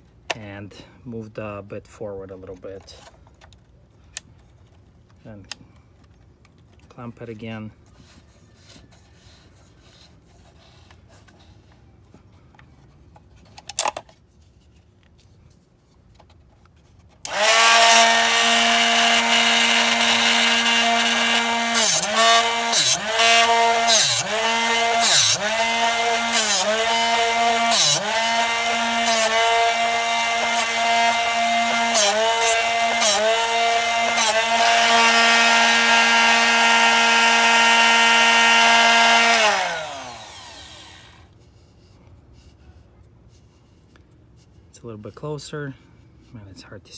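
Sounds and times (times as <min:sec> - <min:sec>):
drill bit grinding scrape: 0:17.2 - 0:41.3
sharpener motor humming: 0:17.3 - 0:41.3.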